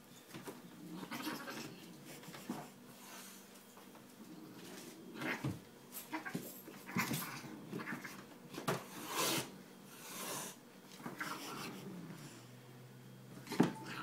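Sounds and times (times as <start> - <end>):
cat vocal sounds: 0.8 - 1.9, 5.1 - 8.2.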